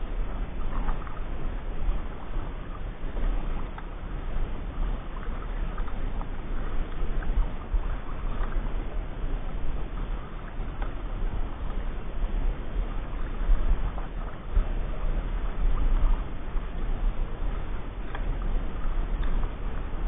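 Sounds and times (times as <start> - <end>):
kayak paddle splashing: 0.0 - 20.0
steady low rumble: 0.0 - 20.0.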